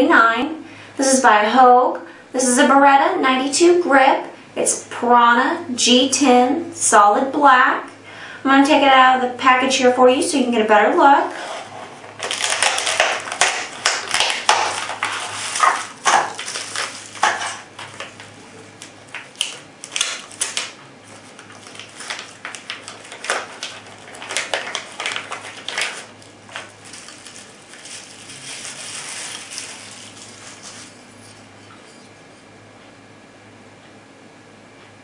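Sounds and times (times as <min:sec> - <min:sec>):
plastic packaging crackling: 0:11.4 - 0:31.8.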